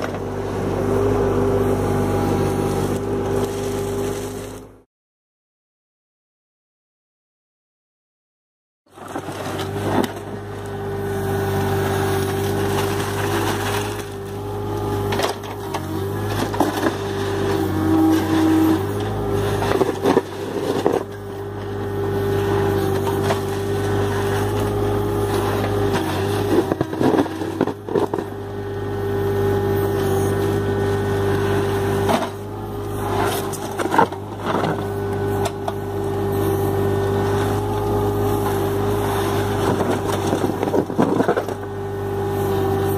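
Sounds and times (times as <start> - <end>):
diesel engine running: 0.0 - 4.8, 9.0 - 42.9
bucket scraping through concrete: 3.2 - 4.6, 11.9 - 14.4, 15.0 - 21.8, 22.4 - 28.4, 29.8 - 35.6.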